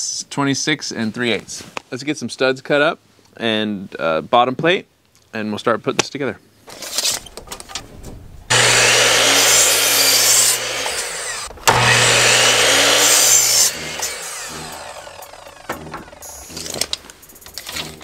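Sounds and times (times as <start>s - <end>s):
miter saw cutting wood: 8.5s - 18.0s.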